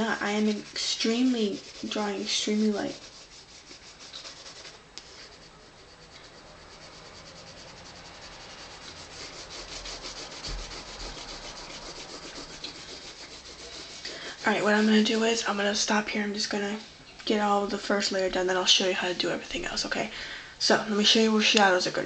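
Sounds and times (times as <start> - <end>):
coloured pencil shading on paper: 0.0 - 15.9.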